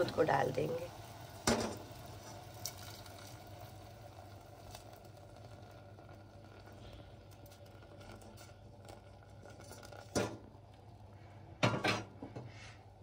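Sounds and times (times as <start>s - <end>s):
metal pans knocking together: 11.6s - 12.1s.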